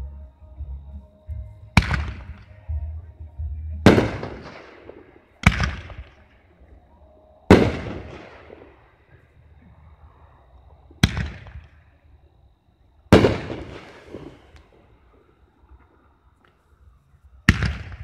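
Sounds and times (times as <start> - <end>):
firework bangs with echo: 1.8 - 2.6, 3.8 - 6.4, 7.5 - 8.9, 11.0 - 11.8, 13.1 - 14.8, 17.5 - 18.0.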